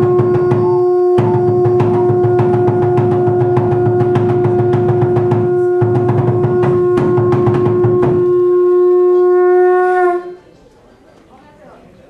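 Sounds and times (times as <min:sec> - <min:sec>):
rapid percussion beats: 0:00.0 - 0:10.4
conch shell trumpet note: 0:00.0 - 0:10.6.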